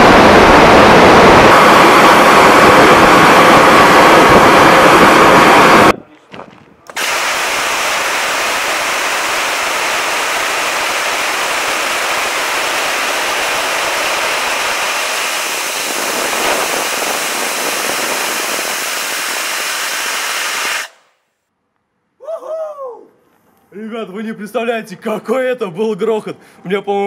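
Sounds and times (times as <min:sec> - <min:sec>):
roar of rushing gas: 0:00.0 - 0:06.0, 0:06.9 - 0:21.0.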